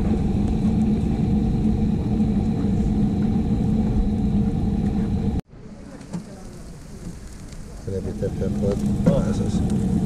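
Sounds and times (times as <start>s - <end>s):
low rumble: 0.0s - 5.4s, 7.3s - 10.0s
rotisserie motor hum: 0.0s - 5.4s.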